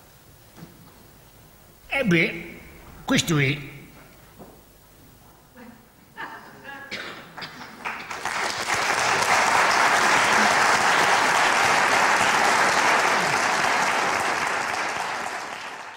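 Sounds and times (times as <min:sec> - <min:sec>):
audience applauding: 0:07.3 - 0:15.9.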